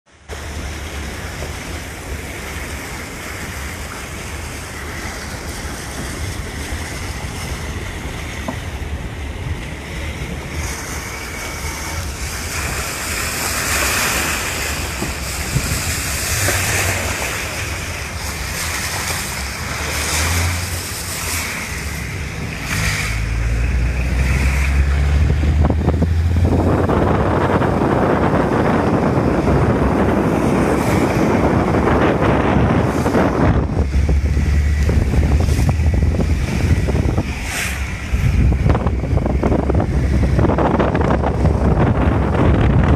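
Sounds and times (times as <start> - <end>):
wet road noise: 0.0 - 42.9
rushing wind: 0.1 - 42.9
low rumble: 14.4 - 42.9.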